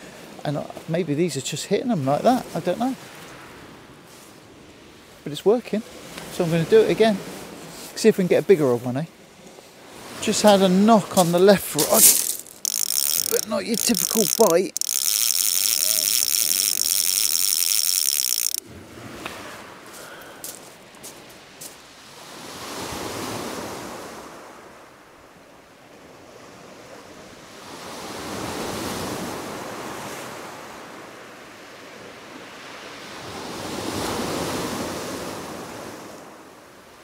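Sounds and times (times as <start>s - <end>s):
waves breaking on shingle beach: 9.8s - 24.7s.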